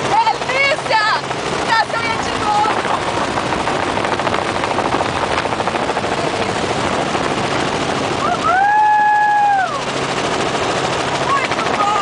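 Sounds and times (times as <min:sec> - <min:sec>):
helicopter rotor and engine: 0:00.0 - 0:12.0
wind rushing in: 0:02.3 - 0:09.1
person's long high cry: 0:08.2 - 0:09.8.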